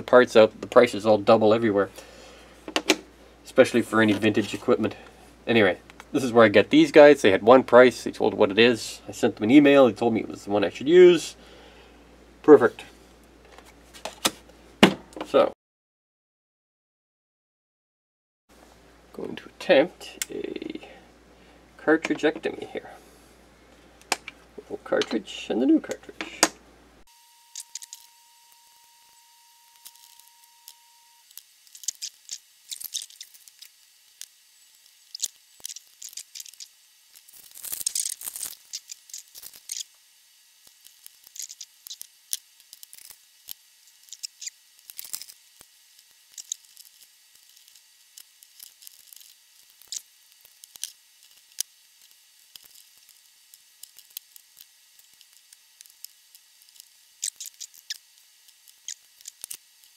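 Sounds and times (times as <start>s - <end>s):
faint steady whine: 18.5s - 59.9s.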